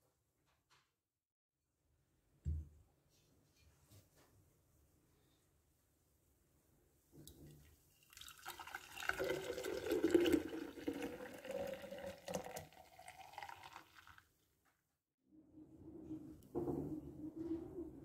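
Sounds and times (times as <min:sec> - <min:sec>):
juice pouring into a pitcher: 0:08.0 - 0:14.3.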